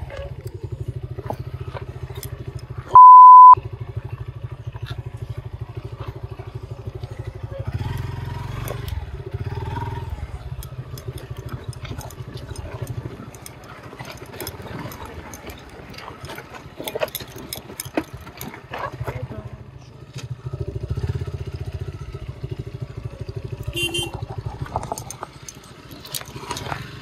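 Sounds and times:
motorcycle engine running: 0:00.0 - 0:27.0
stones clattering under tyres: 0:04.0 - 0:20.4, 0:23.3 - 0:27.0.

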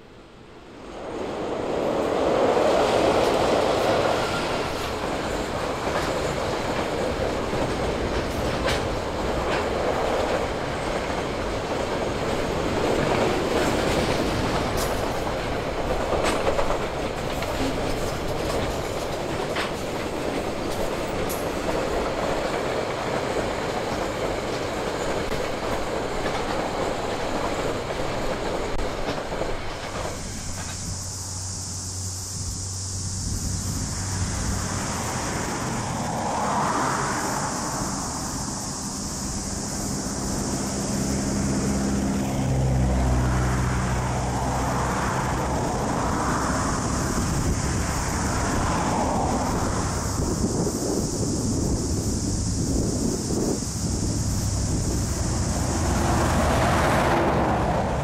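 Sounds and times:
diesel locomotive: 0:00.0 - 0:58.0
train wheels rumbling: 0:00.0 - 0:58.0
wheels clicking on rail joints: 0:00.9 - 0:31.6.

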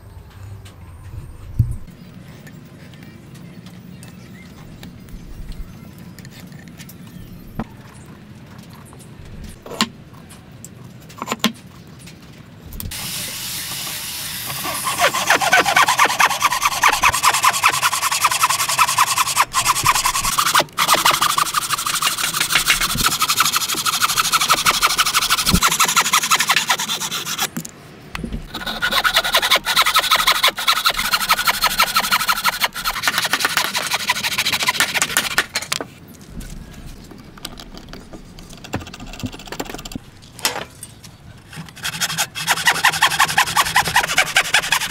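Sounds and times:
handsaw cutting wood: 0:14.3 - 0:27.5, 0:28.4 - 0:35.4, 0:41.5 - 0:44.9.

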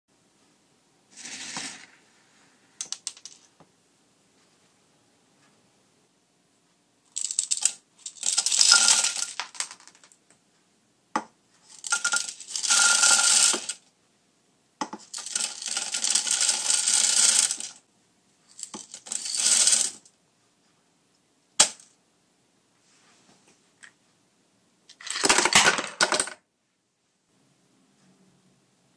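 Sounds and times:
cereal pouring into plastic jar: 0:01.1 - 0:02.1, 0:07.2 - 0:10.0, 0:11.7 - 0:13.8, 0:15.1 - 0:17.8, 0:18.6 - 0:20.0.

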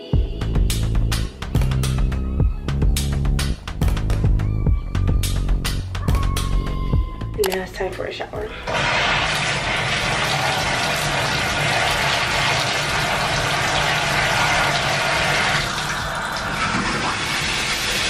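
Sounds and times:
water running from bathtub tap: 0:08.6 - 0:18.0.

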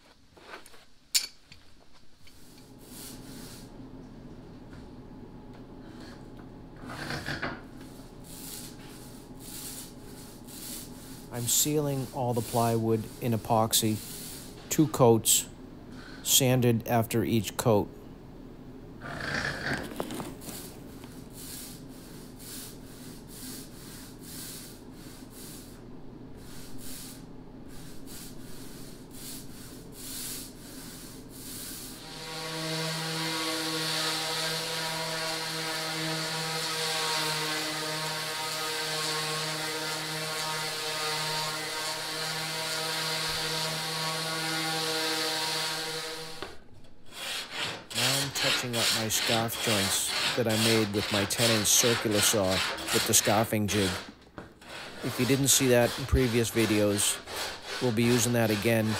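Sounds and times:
roller spreading epoxy: 0:08.3 - 0:14.5, 0:48.0 - 0:54.0, 0:54.8 - 0:58.9.

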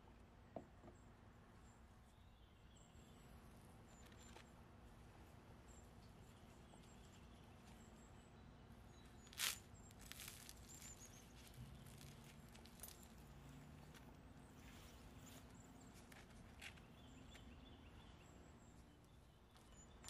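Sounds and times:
faint rustles of fried food: 0:09.0 - 0:17.5.

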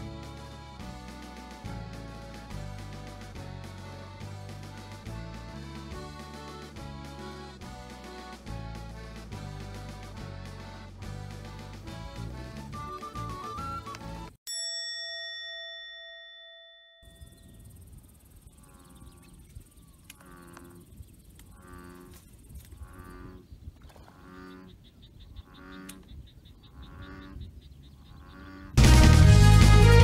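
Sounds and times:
chime ringing: 0:14.5 - 0:17.6
bullfrog calling: 0:17.7 - 0:28.8.

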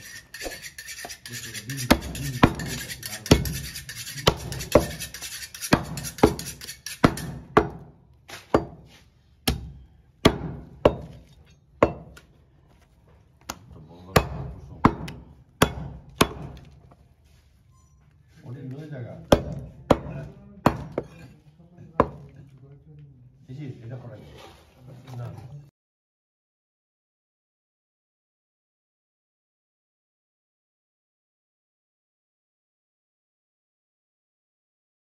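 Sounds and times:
cleaver chopping on wooden block: 0:01.9 - 0:12.3, 0:13.4 - 0:16.8, 0:19.2 - 0:21.2, 0:22.0 - 0:22.3.

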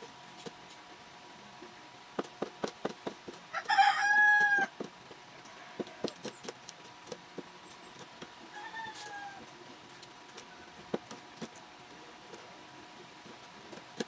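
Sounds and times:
rooster crowing: 0:03.5 - 0:04.7, 0:05.4 - 0:06.2, 0:08.5 - 0:09.5.

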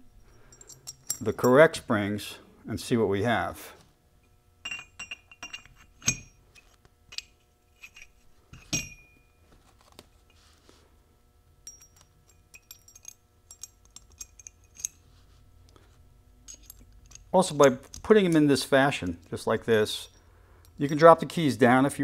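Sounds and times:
steel parts clinking: 0:00.0 - 0:01.8, 0:04.2 - 0:09.3, 0:11.6 - 0:21.3.

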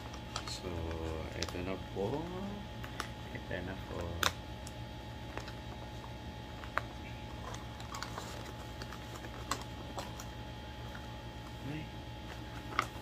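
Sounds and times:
parcel clicks and rustles: 0:00.0 - 0:01.7, 0:03.9 - 0:11.6, 0:12.2 - 0:13.0
low background hum: 0:00.0 - 0:13.0.

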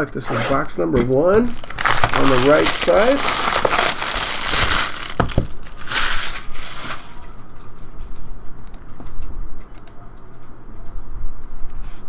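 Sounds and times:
plastic wrap crinkling: 0:01.4 - 0:07.4.

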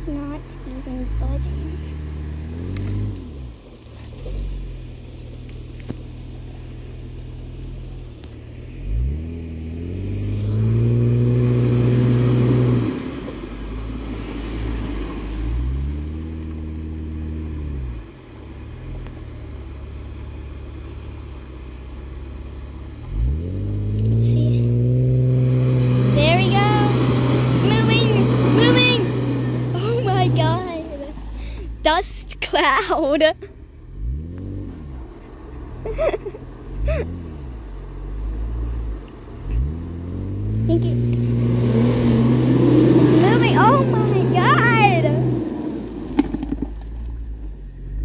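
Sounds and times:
engine revving hard: 0:08.8 - 0:13.3, 0:23.1 - 0:31.6, 0:33.9 - 0:35.0, 0:39.5 - 0:45.8.

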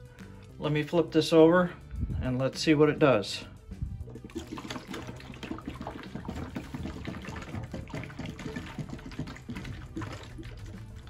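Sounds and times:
water glugging from bottle: 0:03.9 - 0:11.0.

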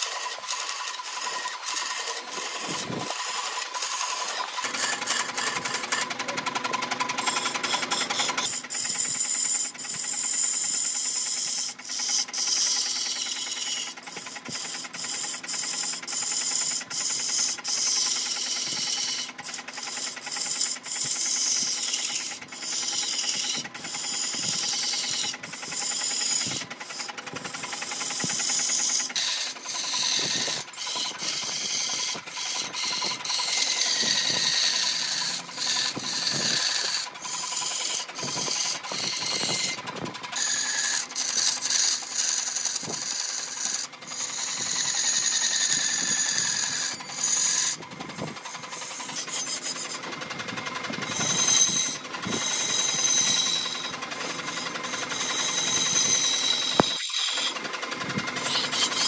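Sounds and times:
tool scraping wood: 0:00.0 - 0:59.0.

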